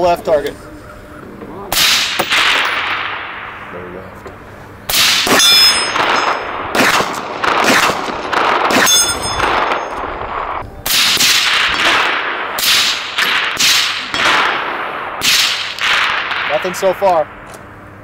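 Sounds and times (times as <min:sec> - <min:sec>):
rifle shots with echo: 0:01.7 - 0:03.7, 0:04.9 - 0:17.0
high metallic ringing: 0:05.2 - 0:06.7, 0:08.1 - 0:10.9.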